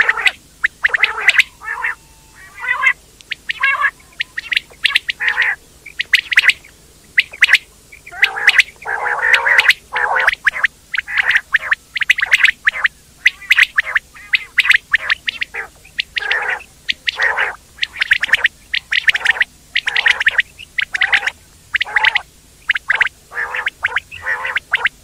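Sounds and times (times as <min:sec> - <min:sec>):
quail calling: 0:00.0 - 0:25.0.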